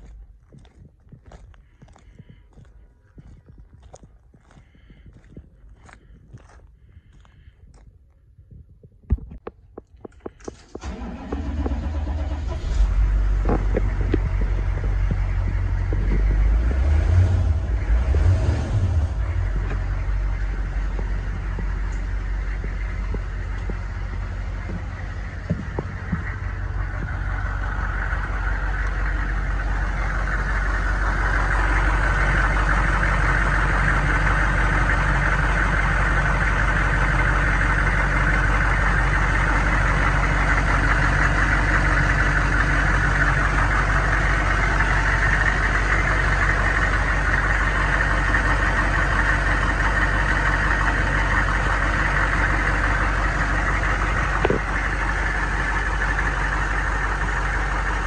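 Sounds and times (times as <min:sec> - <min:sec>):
bus engine idling: 0:00.0 - 0:06.2, 0:10.0 - 0:58.0.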